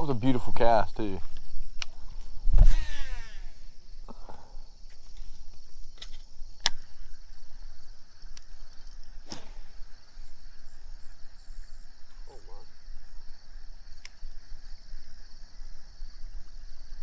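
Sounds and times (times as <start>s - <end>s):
crickets chirping: 0.0s - 17.0s
sharp clicks: 1.3s - 2.3s, 6.0s - 6.9s, 14.0s - 14.2s.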